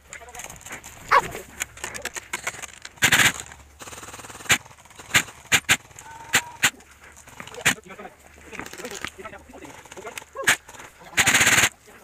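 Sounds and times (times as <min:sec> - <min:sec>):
airsoft guns firing: 0:02.3 - 0:06.8, 0:09.6 - 0:11.8.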